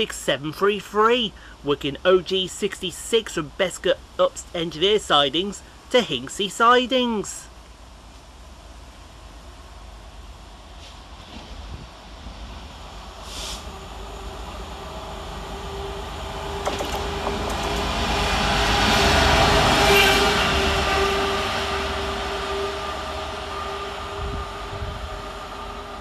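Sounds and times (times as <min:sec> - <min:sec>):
train wheel noise: 0:11.2 - 0:22.2
diesel locomotive passing: 0:12.1 - 0:16.6, 0:17.5 - 0:26.0.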